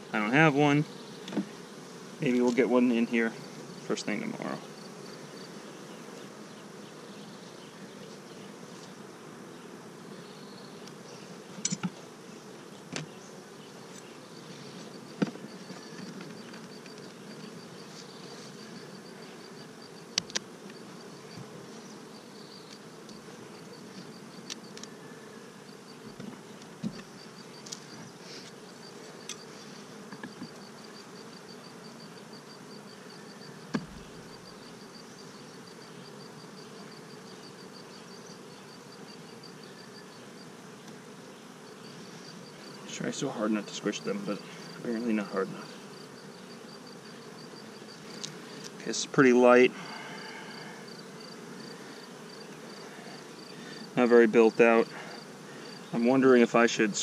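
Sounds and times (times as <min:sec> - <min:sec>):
bees buzzing: 0:00.0 - 0:57.0
wooden hive boxes knocking: 0:14.9 - 0:17.8, 0:25.9 - 0:27.9, 0:30.0 - 0:30.8, 0:33.6 - 0:34.3.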